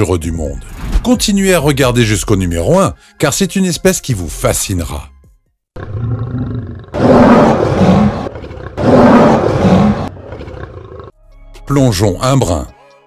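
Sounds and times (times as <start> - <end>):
music: 0.4 - 5.7, 10.1 - 13.0
lion roaring: 5.8 - 11.2.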